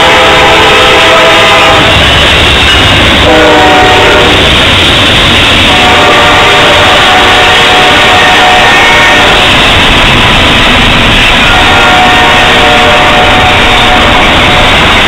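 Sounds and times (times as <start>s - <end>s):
train air horn blasts: 0.0s - 2.0s, 3.2s - 4.5s, 5.6s - 9.6s, 11.4s - 14.9s
locomotive engines rumbling: 0.0s - 15.0s
rolling freight cars: 0.0s - 15.0s.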